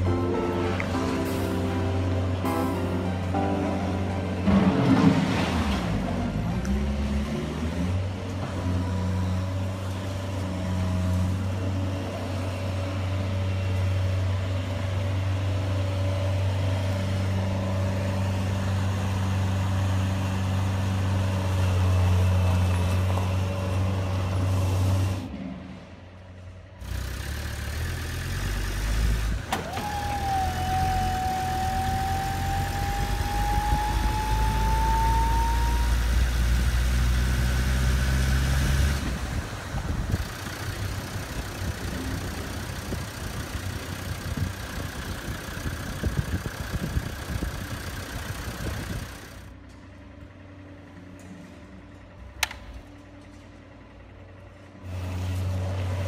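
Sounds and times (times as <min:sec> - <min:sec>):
engine rising whine: 0:00.0 - 0:56.0
toy vehicle engine hum: 0:26.8 - 0:39.2, 0:39.8 - 0:49.5.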